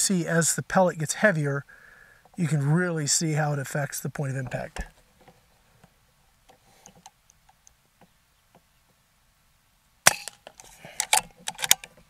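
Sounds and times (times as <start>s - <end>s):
faint ticks: 5.8s - 9.0s
air rifle shot crack: 10.1s - 10.4s.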